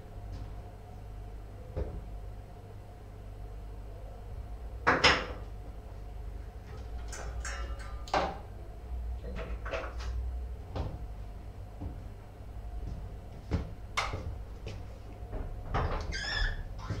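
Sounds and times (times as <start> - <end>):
steady low hum: 0.0 - 17.0
utensils clattering and rattling: 6.9 - 8.4.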